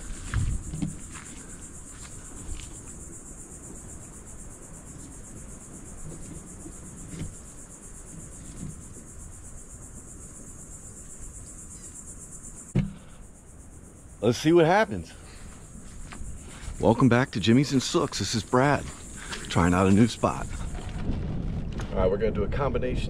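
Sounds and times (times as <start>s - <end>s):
insects trilling: 0.0s - 22.1s.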